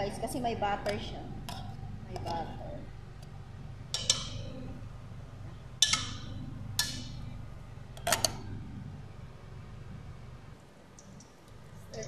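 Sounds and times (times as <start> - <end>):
low steady hum: 0.0 - 12.0
metal spoon clinking on pot: 3.9 - 4.4, 5.8 - 7.2.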